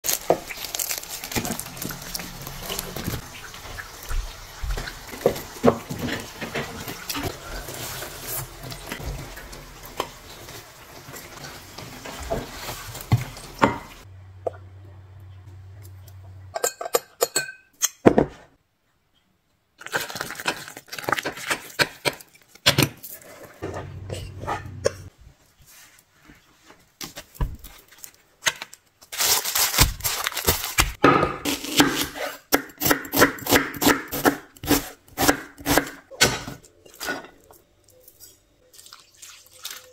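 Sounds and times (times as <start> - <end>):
fried pastry crackling: 0.0 - 4.0
utensils clinking: 16.1 - 18.0
water pouring into a bowl: 38.7 - 39.9.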